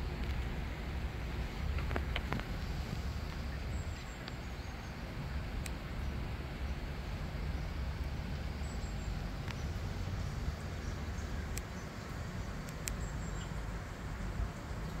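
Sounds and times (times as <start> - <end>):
low background rumble: 0.0 - 15.0
faint sharp clicks: 5.6 - 5.8, 9.4 - 9.6, 11.5 - 11.8, 12.6 - 13.5.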